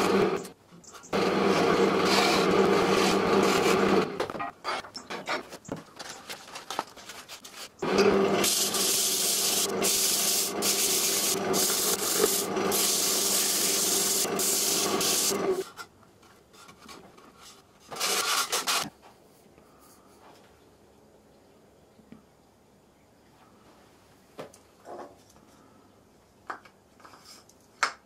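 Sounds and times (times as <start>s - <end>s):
wood lathe humming: 0.0s - 0.5s, 1.2s - 4.2s, 7.8s - 15.6s
sandpaper rubbing spinning wood: 1.2s - 4.1s, 7.9s - 15.6s, 18.0s - 18.8s.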